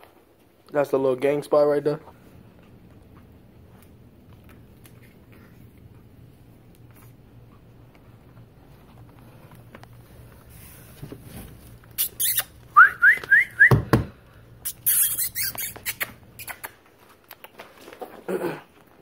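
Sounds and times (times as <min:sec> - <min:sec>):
high-pitched squeaks: 0:11.9 - 0:12.7, 0:14.6 - 0:16.8
bottles bags and boxes knocking: 0:13.6 - 0:14.2.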